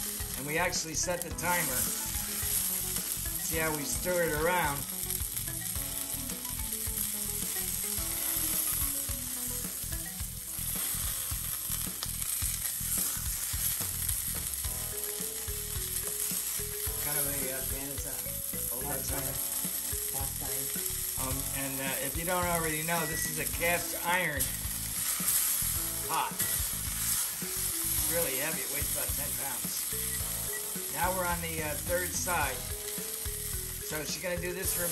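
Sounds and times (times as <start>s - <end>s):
meat sizzling in a skillet: 0.0s - 34.9s.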